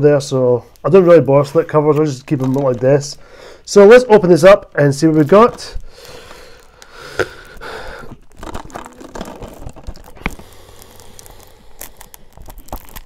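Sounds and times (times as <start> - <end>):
plastic wrapping crinkling and tearing: 1.4 - 3.2, 5.0 - 13.0.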